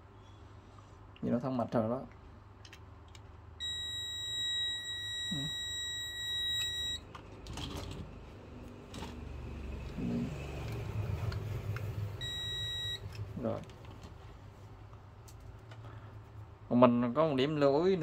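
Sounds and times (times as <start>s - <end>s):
multimeter continuity beep: 3.6s - 7.1s, 12.2s - 13.2s.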